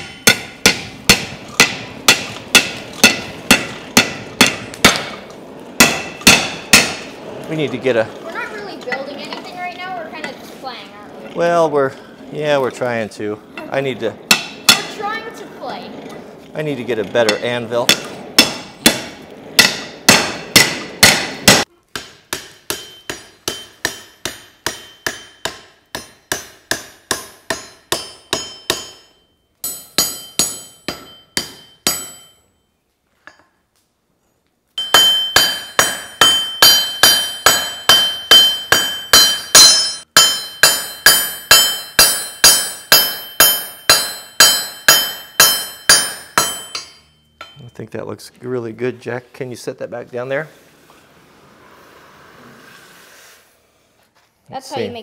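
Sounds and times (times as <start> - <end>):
hammer striking steel on anvil: 0.0 - 5.2, 5.8 - 7.1, 14.3 - 15.0, 17.2 - 32.4, 34.8 - 47.8.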